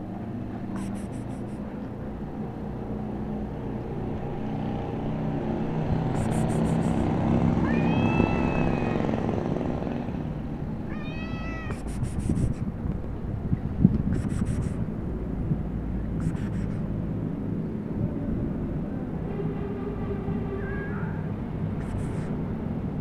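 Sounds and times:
low rumble of passing traffic: 0.0 - 23.0
cat meowing: 7.6 - 9.2, 10.9 - 11.9, 20.6 - 21.3.

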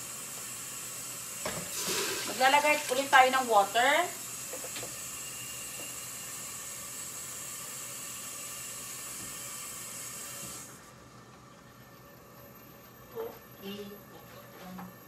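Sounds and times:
water hissing in hot pot: 0.0 - 10.8.

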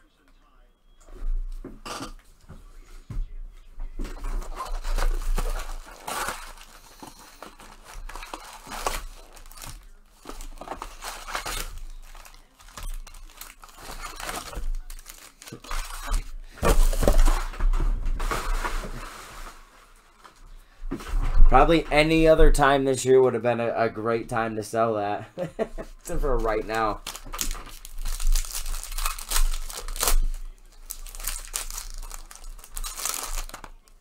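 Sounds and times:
foil wrappers tearing and crinkling: 4.2 - 17.6, 26.1 - 34.0.

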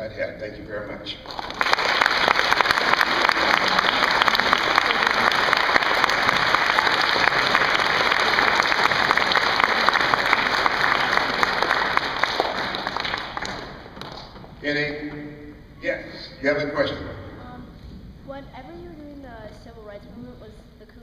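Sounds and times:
audience applauding: 1.2 - 14.6.

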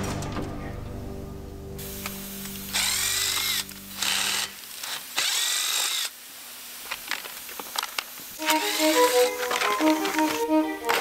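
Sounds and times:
power drill whine: 2.7 - 6.2, 8.4 - 11.0.

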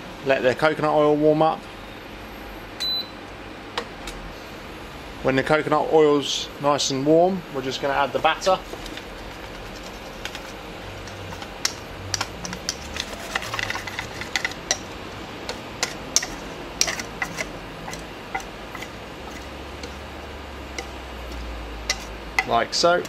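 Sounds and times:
hot oil crackling and popping: 8.6 - 23.0.

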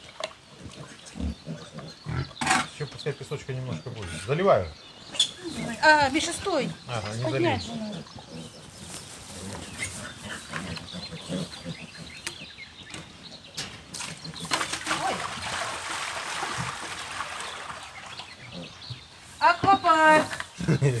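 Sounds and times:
water splashing into sand: 14.0 - 18.5.

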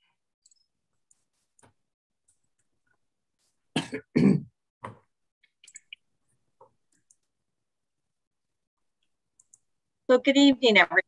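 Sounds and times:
person coughing: 3.7 - 4.6
faint clicks: 9.0 - 9.7.

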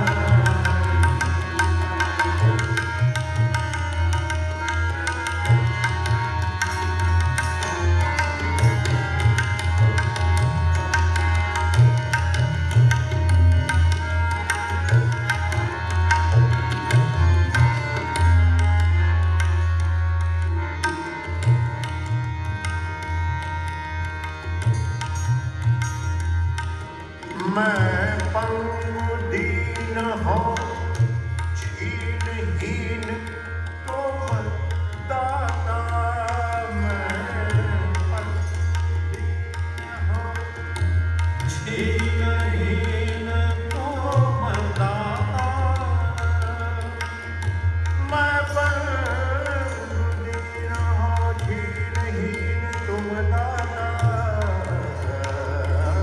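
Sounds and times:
harmonium: 0.0 - 56.0
tabla: 0.0 - 56.0
man singing ornamented melody: 27.4 - 30.9, 31.6 - 38.6, 41.5 - 47.0, 48.0 - 56.0.

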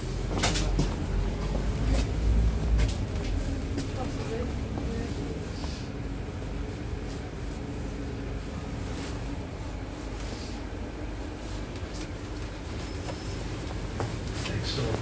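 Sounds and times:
bus interior running noise: 0.0 - 15.0.

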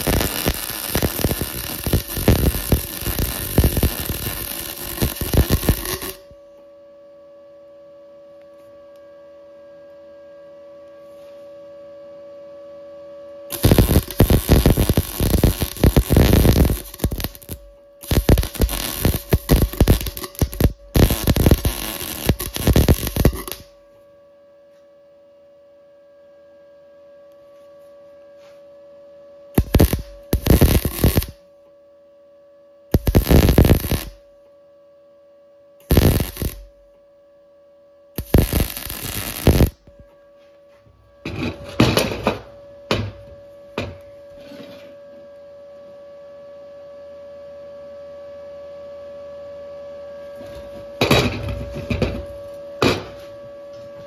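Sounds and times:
welding arc crackling: 0.0 - 6.2, 13.5 - 23.7, 29.6 - 31.4, 32.9 - 34.2, 35.8 - 36.7, 38.2 - 39.8
steady electrical hum: 0.0 - 54.0.

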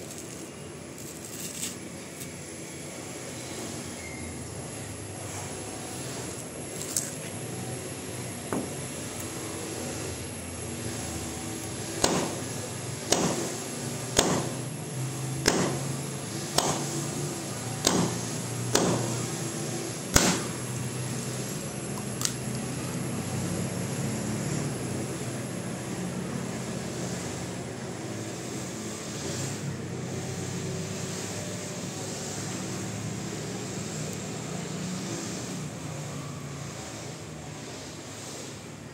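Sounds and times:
coconut shell splitting: 14.2 - 14.6, 20.1 - 20.6.

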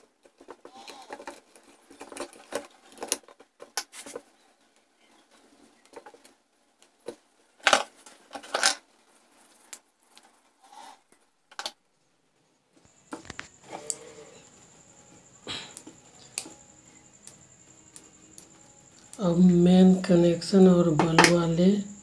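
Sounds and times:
tools and wire clicking: 0.0 - 4.2, 15.7 - 19.2.

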